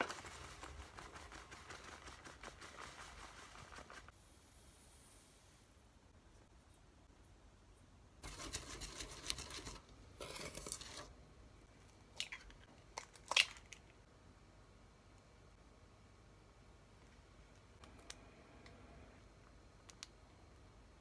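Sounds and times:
whisk scratching in metal bowl: 0.0 - 4.1, 8.2 - 11.1.

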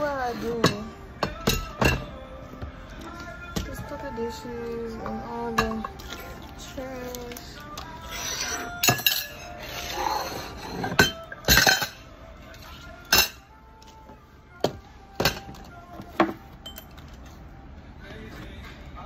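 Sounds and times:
dishes clinking into plastic tub: 5.0 - 6.2, 10.8 - 12.0.

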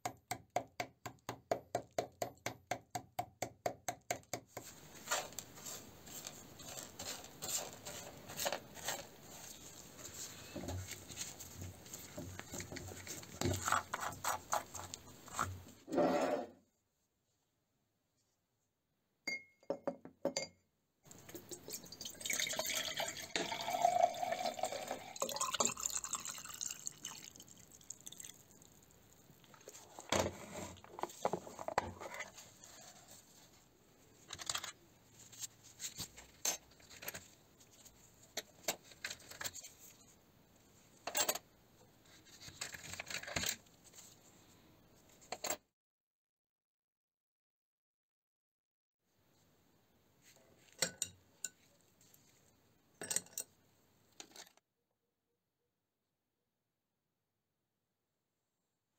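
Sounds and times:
liquid pouring into glass jar: 21.3 - 29.0.

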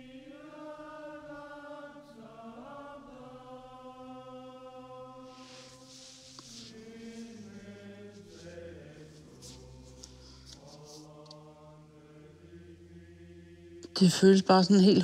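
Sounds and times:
choir-like chanted music: 0.0 - 15.0
faint breathy hisses: 5.2 - 11.2.

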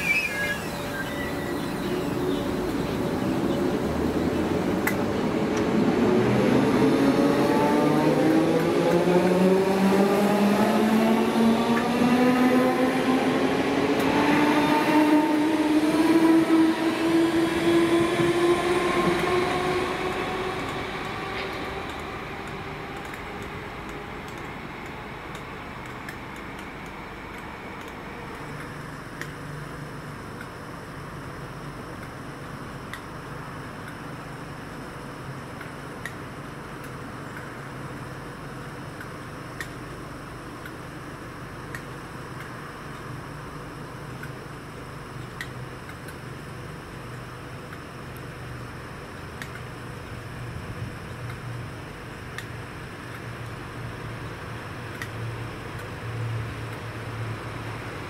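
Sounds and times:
electric train motors whining: 0.0 - 30.5.

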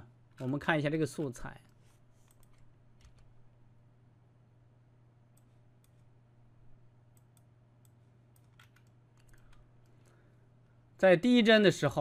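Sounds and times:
faint low hum: 0.0 - 12.0
computer mouse clicks: 1.6 - 3.3, 5.3 - 6.1, 7.1 - 10.1.

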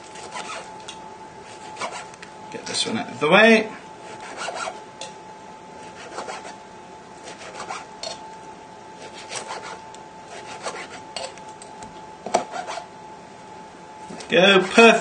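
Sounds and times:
knife sawing on plastic board: 0.1 - 0.7, 1.4 - 2.1, 4.0 - 4.8, 5.8 - 6.6, 7.2 - 7.9, 9.0 - 11.4, 12.4 - 12.9, 14.1 - 15.0.

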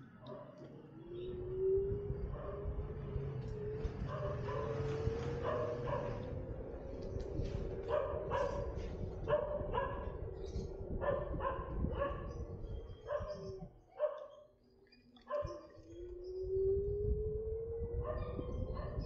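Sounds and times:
low road rumble: 0.0 - 14.2, 15.2 - 19.0
dog barking: 2.3 - 2.7, 4.1 - 6.3, 7.8 - 10.2, 11.0 - 12.4, 13.0 - 14.5, 15.3 - 15.6, 18.0 - 19.0.

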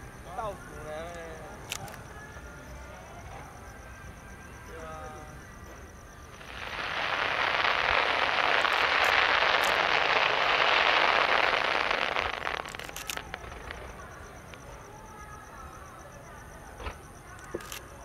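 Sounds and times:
fireworks crackling and popping: 6.2 - 15.0.

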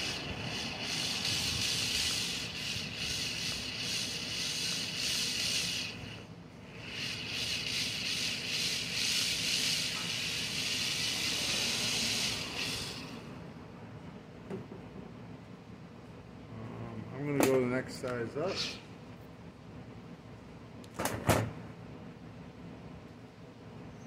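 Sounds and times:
cordless drill boring into metal: 0.0 - 13.2.

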